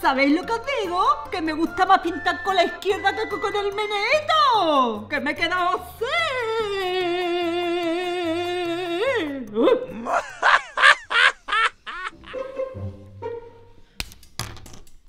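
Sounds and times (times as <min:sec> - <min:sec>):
faint background music: 0:00.0 - 0:10.9.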